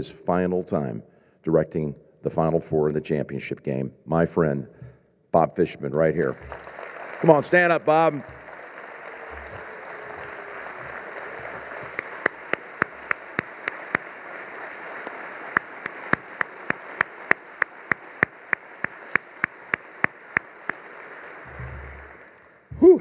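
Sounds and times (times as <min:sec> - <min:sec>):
audience applause: 0:06.3 - 0:22.7
sharp evenly spaced clicks: 0:15.6 - 0:20.8.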